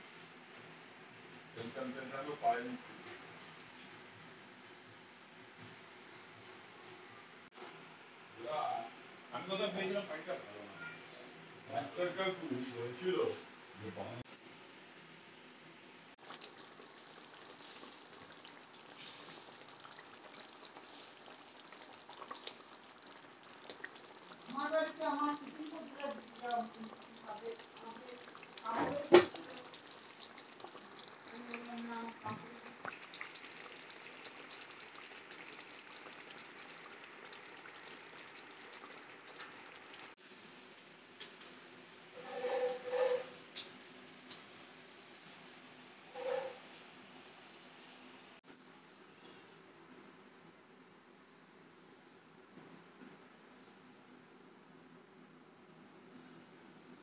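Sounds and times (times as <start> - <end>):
faint steady hiss: 0.0 - 42.7
curry bubbling and crackling: 16.2 - 41.5.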